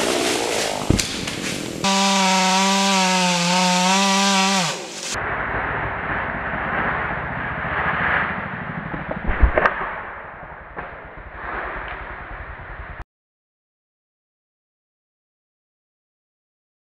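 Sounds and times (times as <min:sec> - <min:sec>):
chainsaw running at high revs: 0:01.8 - 0:05.2.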